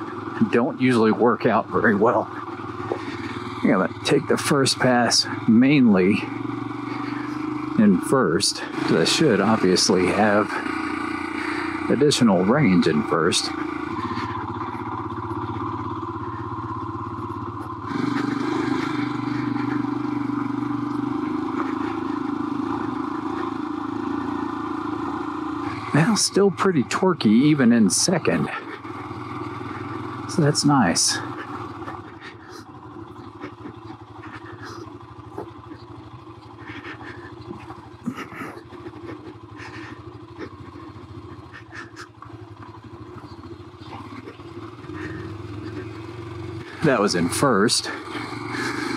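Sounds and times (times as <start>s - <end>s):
motorcycle engine pulling uphill: 0.0s - 48.9s.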